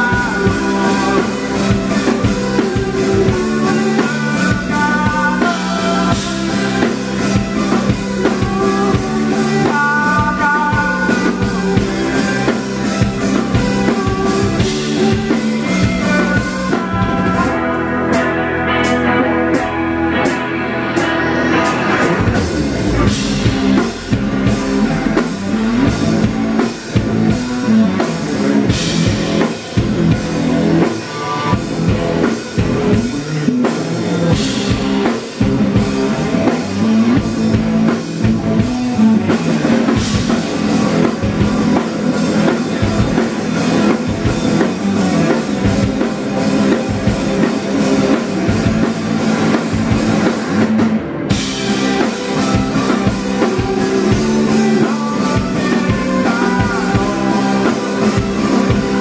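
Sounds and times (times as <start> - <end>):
rock band playing: 0.0 - 59.0
cymbal crashes: 20.8 - 26.6.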